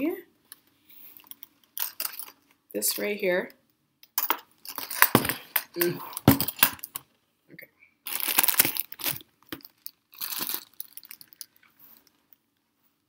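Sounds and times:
plastic bag crinkling: 8.1s - 12.2s.

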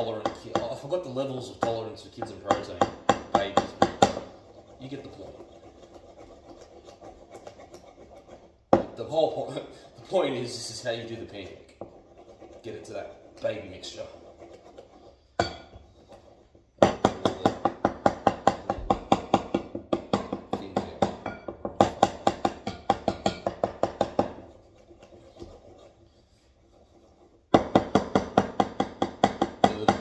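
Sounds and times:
wooden spoon beating in bowl: 0.0s - 4.4s, 14.8s - 15.9s, 16.8s - 25.5s, 27.5s - 30.0s.

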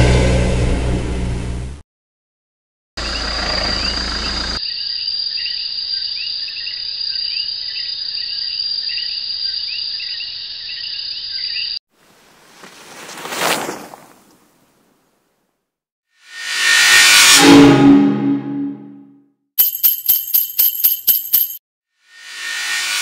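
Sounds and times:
bird chirps: 3.0s - 11.8s
insect drone: 3.0s - 11.8s.

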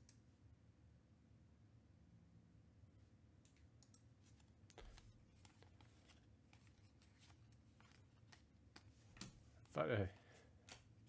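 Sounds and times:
trading cards rustling and flicking: 4.2s - 11.0s.

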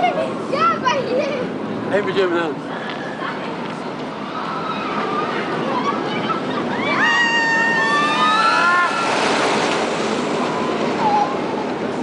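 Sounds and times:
roller coaster rushing on track: 0.0s - 12.0s
riders screaming: 6.6s - 9.7s.

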